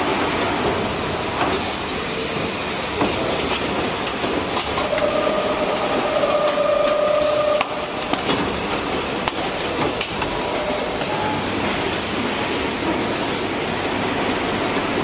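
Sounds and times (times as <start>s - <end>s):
mechanical din of bottling line: 0.0s - 15.0s
machine clicks and knocks: 3.0s - 11.2s.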